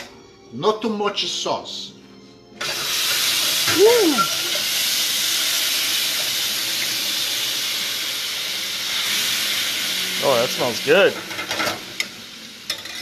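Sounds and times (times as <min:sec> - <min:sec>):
sauce sizzling in hot fat: 0:02.6 - 0:13.0.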